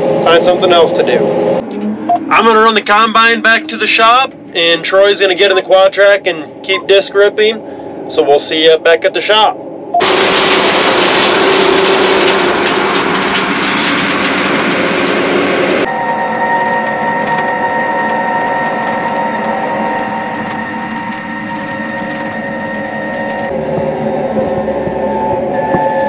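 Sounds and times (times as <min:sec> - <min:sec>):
machine whine: 0:09.7 - 0:26.0
heavy farm machinery running: 0:10.0 - 0:26.0.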